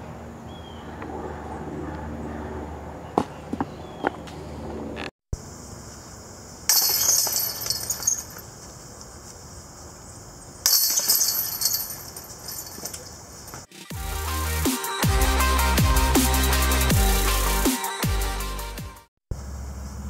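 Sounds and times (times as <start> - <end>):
discs hitting metal chains: 6.7 - 8.4, 10.7 - 13.2.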